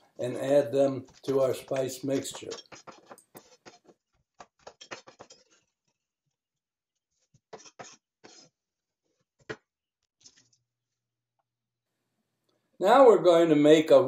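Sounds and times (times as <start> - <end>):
knocks and scrapes: 0.0 - 6.0, 7.1 - 10.6.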